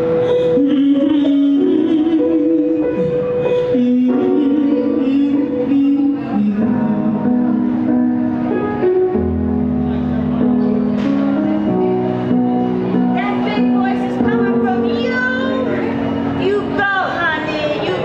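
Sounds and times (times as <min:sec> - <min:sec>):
keyboard chords backing track: 0:00.0 - 0:18.0
girl singing into microphone: 0:00.2 - 0:07.5.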